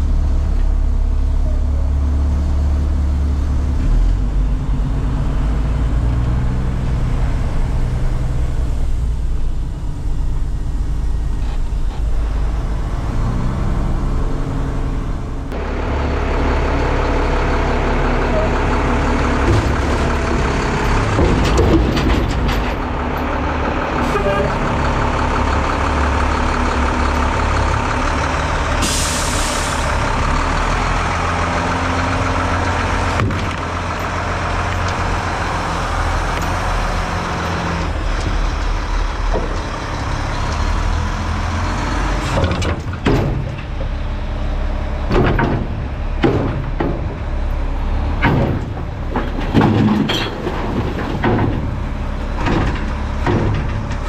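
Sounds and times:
diesel engine running: 0:00.0 - 0:54.0
dumpster bangs and knocks: 0:19.2 - 0:23.1, 0:32.2 - 0:38.5, 0:42.2 - 0:44.0, 0:45.0 - 0:54.0
trash dropping: 0:19.4 - 0:22.9, 0:32.9 - 0:34.2, 0:42.2 - 0:43.9, 0:45.0 - 0:47.3, 0:48.1 - 0:54.0.

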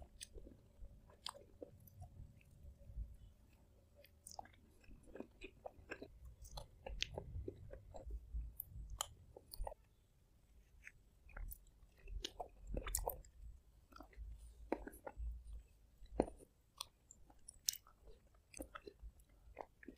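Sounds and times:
person chewing and lip smacking: 0:00.0 - 0:02.7, 0:03.4 - 0:10.0, 0:10.6 - 0:19.9.

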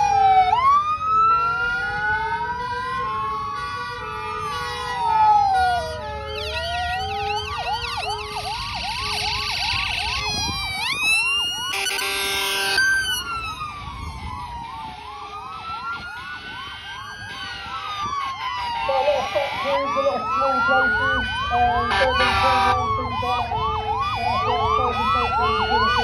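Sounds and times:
siren fast yelp: 0:00.0 - 0:26.0
siren rising and falling wail: 0:00.0 - 0:26.0
siren warble and chirps: 0:05.2 - 0:26.0.

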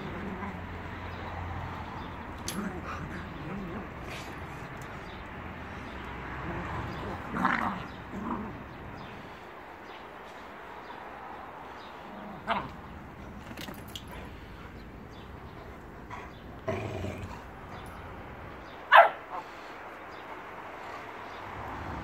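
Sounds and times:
dogs barking: 0:18.6 - 0:20.3.

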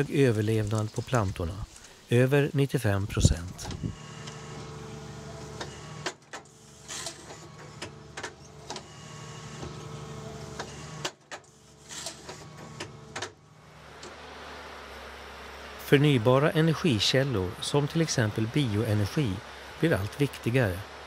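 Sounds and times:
steady machine hum: 0:12.8 - 0:21.0.

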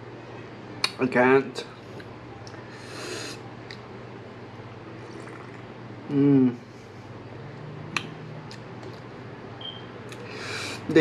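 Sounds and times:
person slurping: 0:05.1 - 0:06.5
person humming: 0:06.1 - 0:06.6.

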